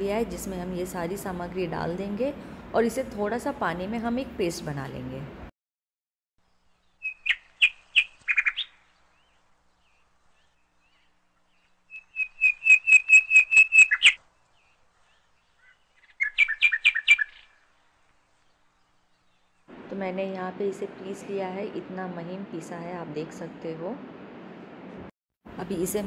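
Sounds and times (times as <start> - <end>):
bird calling rapid sharp notes: 7.0 - 8.9, 11.9 - 14.2, 15.6 - 17.6.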